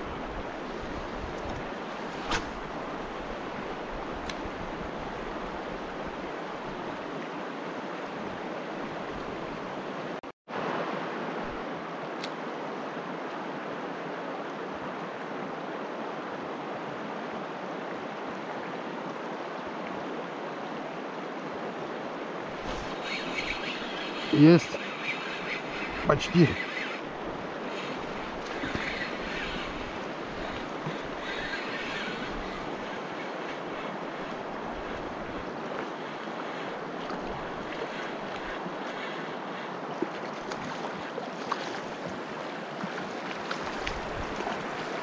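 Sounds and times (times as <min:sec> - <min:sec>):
river rushing: 0:10.5 - 0:45.0.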